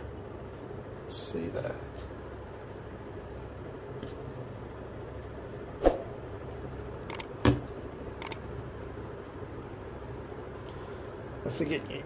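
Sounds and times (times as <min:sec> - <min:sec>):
steady low hum: 0:00.0 - 0:12.0
light double clicks: 0:07.1 - 0:07.3, 0:08.2 - 0:08.4.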